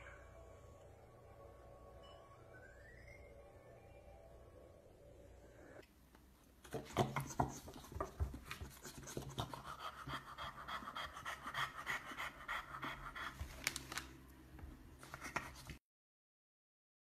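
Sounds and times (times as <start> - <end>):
dog panting: 7.0 - 13.6.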